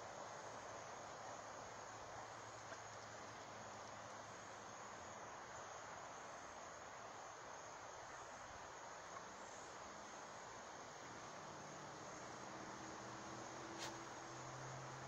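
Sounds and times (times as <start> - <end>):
even hiss: 10.1 - 15.0.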